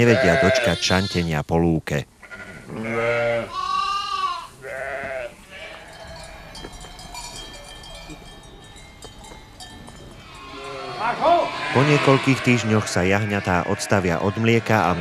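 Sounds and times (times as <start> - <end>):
sheep and lambs bleating: 0.0 - 1.4, 2.2 - 6.6, 10.2 - 15.0.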